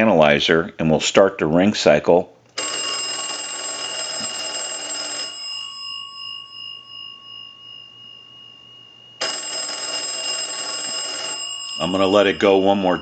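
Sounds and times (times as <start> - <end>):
telephone bells ringing: 2.6 - 8.3, 9.2 - 13.0.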